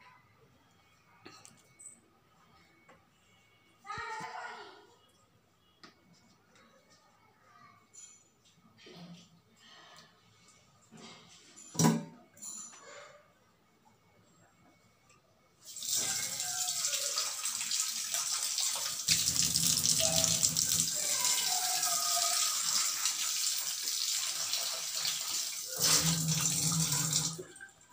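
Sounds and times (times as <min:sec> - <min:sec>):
water splashing into a steel sink: 0:15.7 - 0:27.4.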